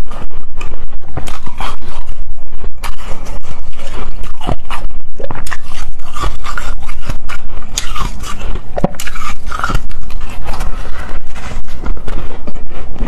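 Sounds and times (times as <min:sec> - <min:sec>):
chewing crunchy shaved ice: 0:01.1 - 0:02.2, 0:02.8 - 0:12.1.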